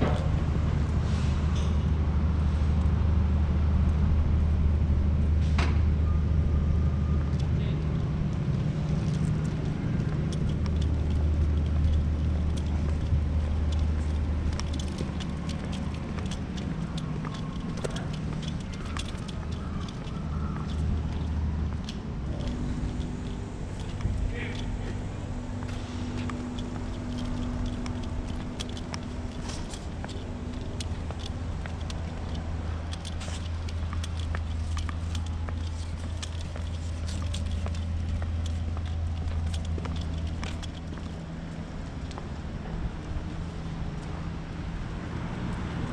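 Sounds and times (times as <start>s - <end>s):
footsteps on pavement: 7.2s - 45.9s
generator humming: 8.7s - 42.0s.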